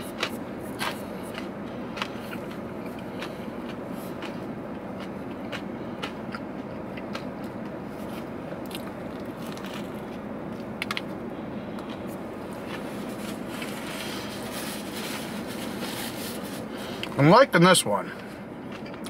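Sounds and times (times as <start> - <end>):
person chewing food: 0.0 - 11.1, 11.7 - 14.4, 18.6 - 19.0
crunch: 8.0 - 11.1.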